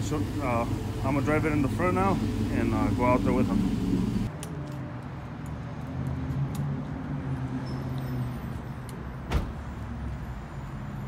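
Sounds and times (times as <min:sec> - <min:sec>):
vehicle engine idling: 0:00.0 - 0:04.3.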